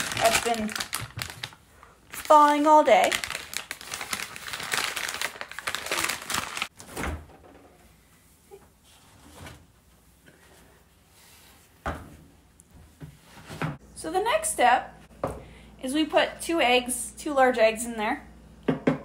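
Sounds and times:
plastic wrapper crinkling: 0.0s - 6.7s.

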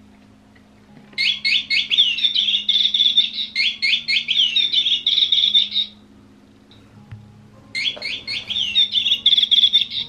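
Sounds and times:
electronic toy bird chirping: 1.2s - 6.0s, 7.8s - 10.0s.

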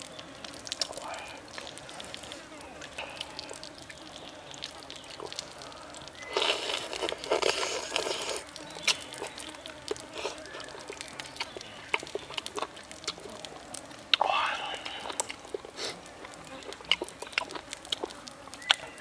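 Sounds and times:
breathy noise near microphone: 0.0s - 19.0s
chopsticks scraping clay pot: 6.3s - 9.4s, 10.1s - 11.6s.

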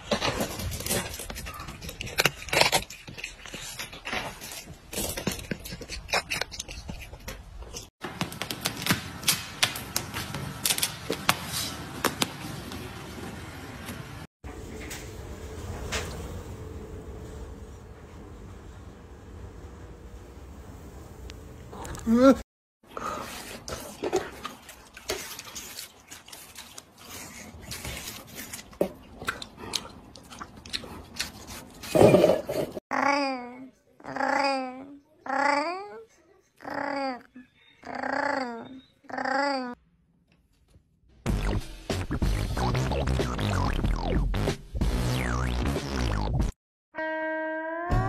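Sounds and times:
crunching watermelon: 0.0s - 7.0s.

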